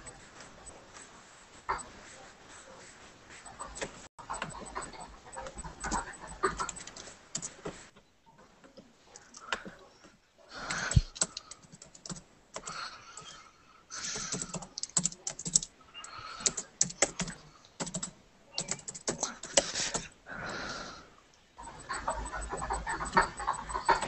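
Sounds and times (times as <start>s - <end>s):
typing on keyboard: 3.5s - 7.6s, 10.6s - 13.3s, 14.0s - 20.1s, 21.6s - 24.0s.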